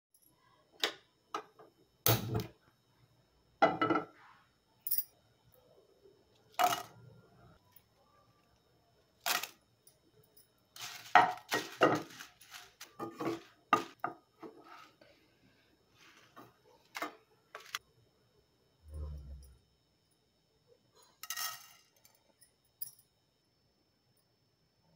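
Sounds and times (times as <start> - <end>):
cookware knocking and clattering: 3.6 - 4.2, 10.8 - 12.3, 12.9 - 14.6.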